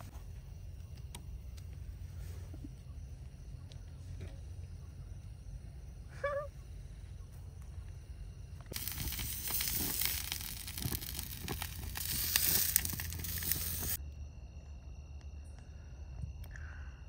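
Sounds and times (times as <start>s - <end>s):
fat crackling: 8.6s - 14.0s
burger patty sizzling on grill: 8.7s - 14.0s.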